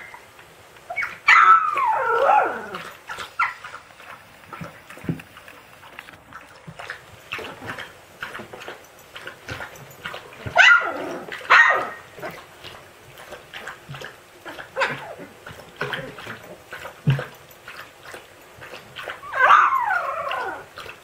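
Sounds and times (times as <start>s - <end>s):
puppies yipping and yelping: 0.0s - 0.3s, 0.9s - 5.1s, 8.9s - 12.4s, 14.4s - 16.6s, 19.0s - 20.8s.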